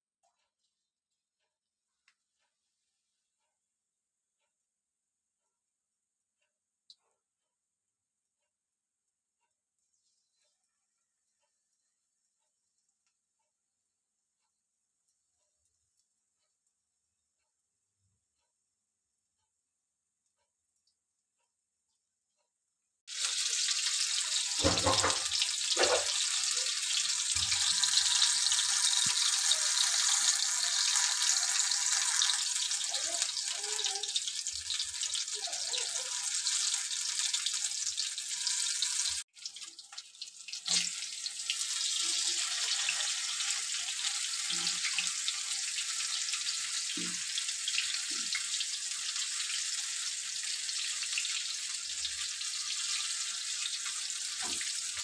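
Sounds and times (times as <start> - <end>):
deep-frying sizzle in oil: 23.0 - 55.0.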